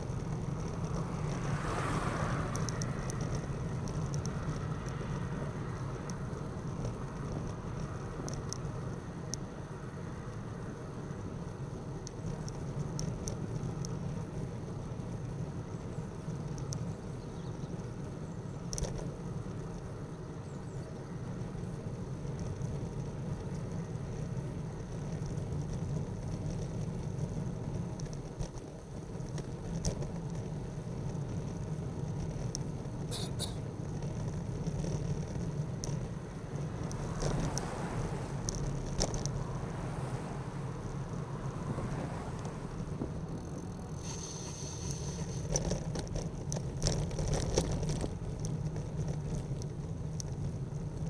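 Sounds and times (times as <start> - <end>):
road rumble: 0.0 - 51.0
motor vehicle passing: 0.1 - 8.1, 29.2 - 51.0.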